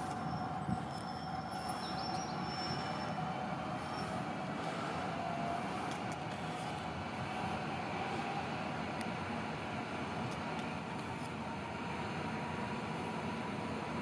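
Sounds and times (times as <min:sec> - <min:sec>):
thin high whine: 0:00.0 - 0:08.8
electric train rumble and hum: 0:00.0 - 0:14.0.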